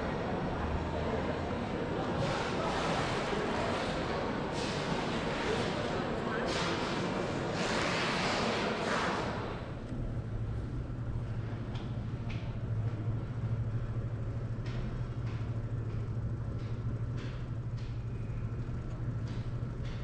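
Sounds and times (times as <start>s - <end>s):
low indoor building hum: 0.0s - 20.0s.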